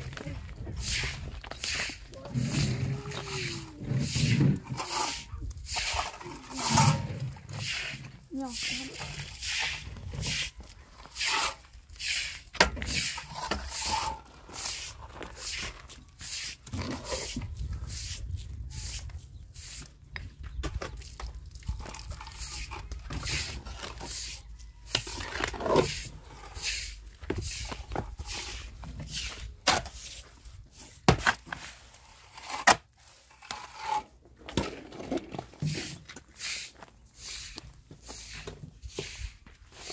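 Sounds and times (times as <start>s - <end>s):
shovel scraping wet mortar: 0.0s - 19.9s, 20.8s - 39.9s.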